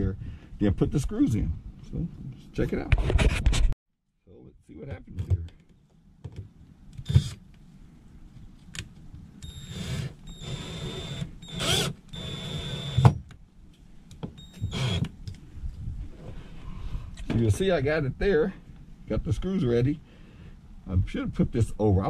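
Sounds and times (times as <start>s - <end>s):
cordless drill whining: 7.0s - 7.4s, 9.4s - 13.2s, 14.4s - 15.1s.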